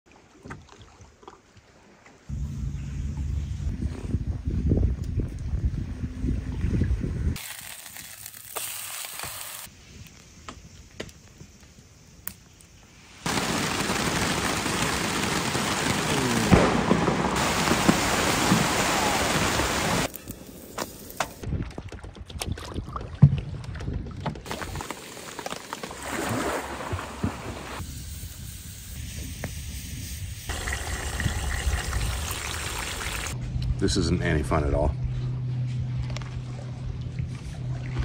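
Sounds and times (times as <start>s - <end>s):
wind: 0.0s - 38.0s
rain falling on a lake: 13.2s - 20.1s, 24.5s - 27.8s.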